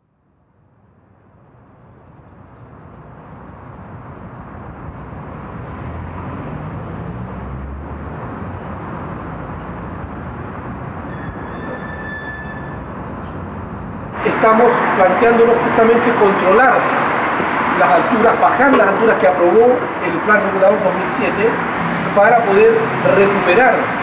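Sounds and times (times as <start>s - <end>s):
heavy vehicle passing: 3.1s - 11.9s, 12.6s - 24.0s
traffic rumbling hiss: 12.6s - 24.0s.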